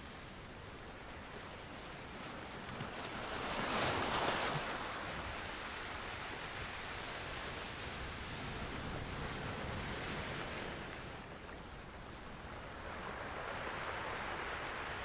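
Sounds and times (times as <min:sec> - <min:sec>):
waves lapping against rocks: 0:01.9 - 0:06.3.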